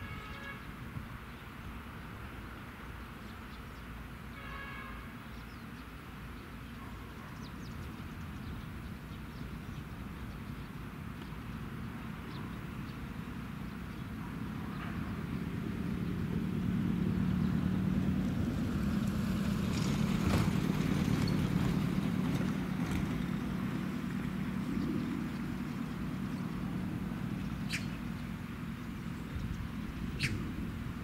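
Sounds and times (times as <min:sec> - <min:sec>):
motor engine droning: 0:14.5 - 0:31.0.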